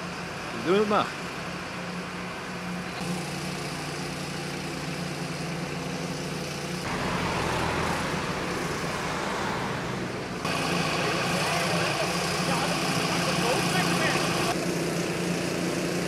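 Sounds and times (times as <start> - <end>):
diesel engine humming: 0.0 - 16.0
van driving past: 5.4 - 15.1.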